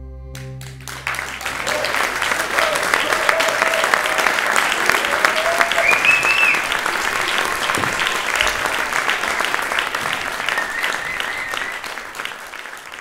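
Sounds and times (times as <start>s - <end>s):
audience applauding: 0.4s - 13.0s
high whistle from crowd: 5.3s - 8.6s, 10.1s - 12.2s.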